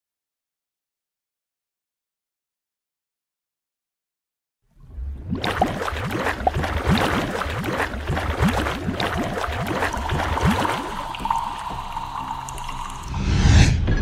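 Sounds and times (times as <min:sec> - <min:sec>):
underwater bubbles: 0:04.8 - 0:13.1
steady tone: 0:09.8 - 0:14.0
low rumble: 0:10.0 - 0:14.0.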